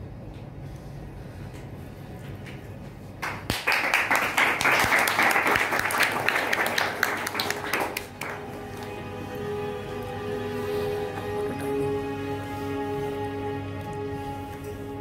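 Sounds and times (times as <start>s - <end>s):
audience applause: 3.2s - 9.7s.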